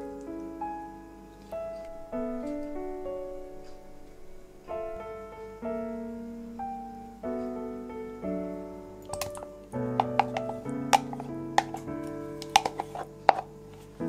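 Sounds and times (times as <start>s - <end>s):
solo piano music: 0.0s - 14.0s.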